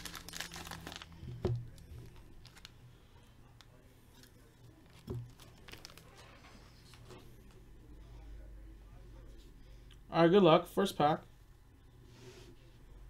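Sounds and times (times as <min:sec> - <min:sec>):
foil pack crinkling and tearing: 0:00.0 - 0:02.7, 0:04.8 - 0:07.1.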